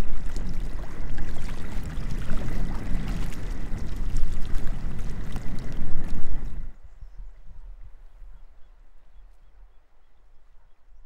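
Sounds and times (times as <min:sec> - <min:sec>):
small waves lapping on rocks: 0:00.0 - 0:06.7
wind rumble on microphone: 0:00.0 - 0:11.0.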